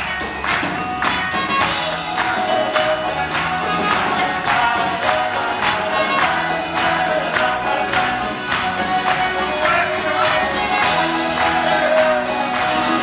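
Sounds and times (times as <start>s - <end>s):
folk band playing: 0.0s - 13.0s
voices singing together: 1.7s - 13.0s.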